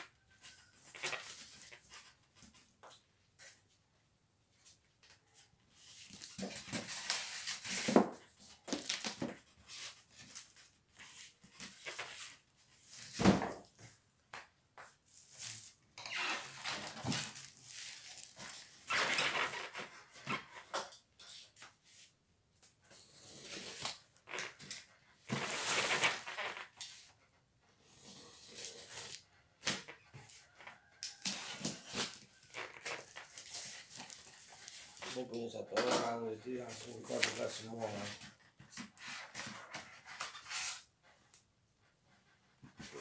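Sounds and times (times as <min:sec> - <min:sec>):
cardboard and plastic rustling: 0:05.7 - 0:14.0, 0:15.0 - 0:20.7, 0:23.4 - 0:27.1, 0:28.3 - 0:40.9.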